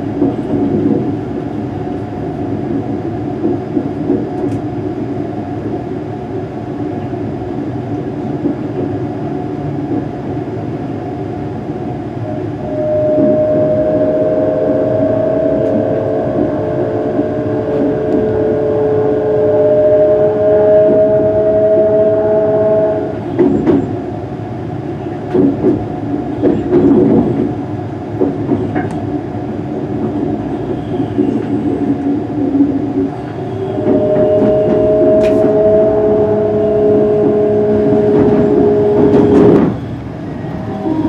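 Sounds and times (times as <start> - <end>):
train running rumble: 0.0 - 41.0
traction motor whine: 12.6 - 23.2, 33.5 - 39.6.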